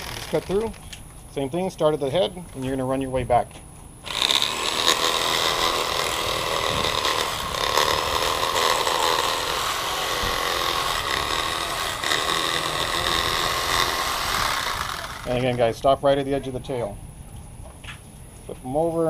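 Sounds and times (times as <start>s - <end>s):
electric knife motor whine: 0.0s - 0.6s, 4.0s - 15.4s.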